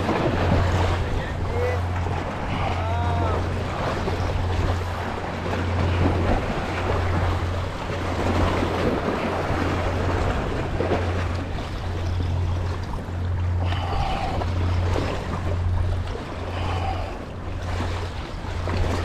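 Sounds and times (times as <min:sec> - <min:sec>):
sea surf washing against rocks: 0:00.0 - 0:19.0
wind buffeting microphone: 0:00.0 - 0:19.0.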